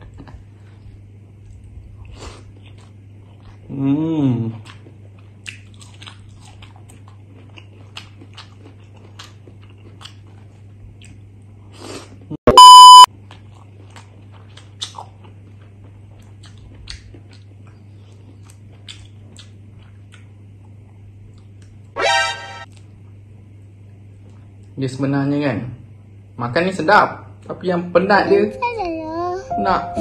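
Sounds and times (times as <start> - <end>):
close chewing and mouth clicks: 1.4 - 3.7, 4.5 - 12.2, 13.2 - 21.9
loud electronic beep: 12.5 - 13.1, 22.0 - 22.7.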